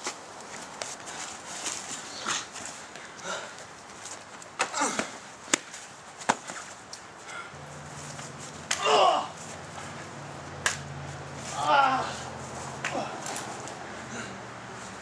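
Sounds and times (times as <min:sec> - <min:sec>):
person shouting: 0:08.8 - 0:09.4, 0:11.5 - 0:12.3.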